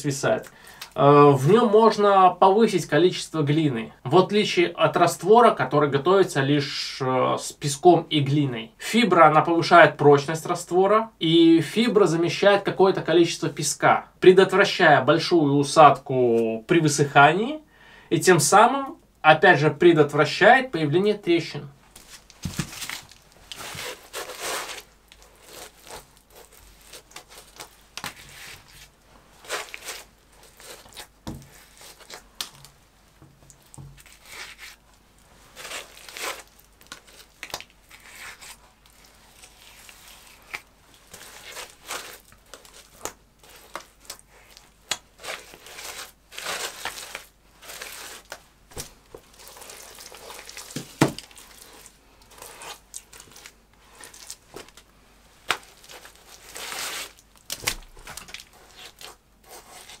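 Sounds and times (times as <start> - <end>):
clay plaster swishing and scraping: 21.9 - 32.7, 33.5 - 54.8, 55.4 - 60.0.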